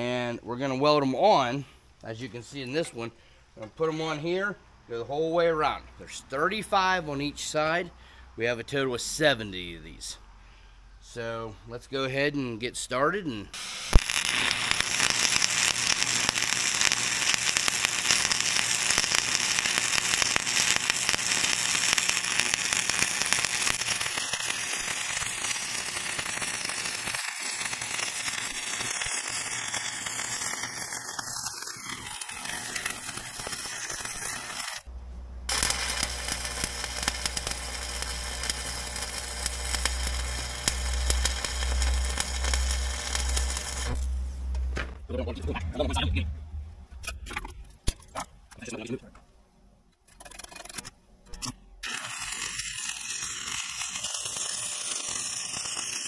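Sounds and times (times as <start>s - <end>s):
welding arc crackling: 13.6s - 34.9s, 35.5s - 45.0s, 51.8s - 56.0s
low hum: 34.9s - 48.5s.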